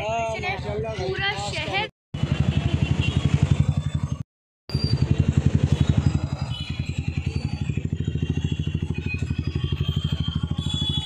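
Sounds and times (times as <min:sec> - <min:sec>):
vehicle engine throbbing: 0:02.2 - 0:11.0.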